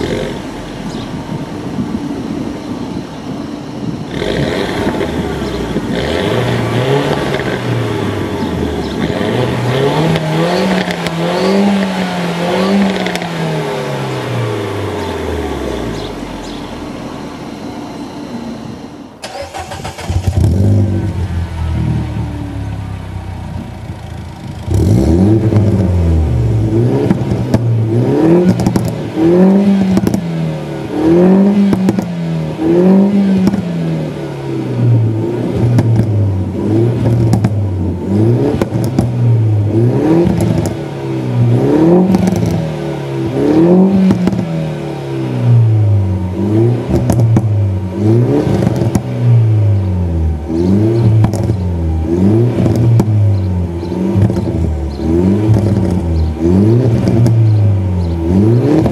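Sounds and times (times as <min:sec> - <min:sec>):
car engine revving: 0:00.0 - 0:58.9
exhaust pops and crackles: 0:12.8 - 0:13.3, 0:27.0 - 0:30.3, 0:31.6 - 0:32.2, 0:33.4 - 0:33.7, 0:35.6 - 0:36.2, 0:37.0 - 0:37.7, 0:38.5 - 0:39.3, 0:40.2 - 0:40.8, 0:42.0 - 0:42.6, 0:43.2 - 0:44.5, 0:46.9 - 0:47.6, 0:48.4 - 0:49.2, 0:50.6 - 0:51.7, 0:52.4 - 0:58.9.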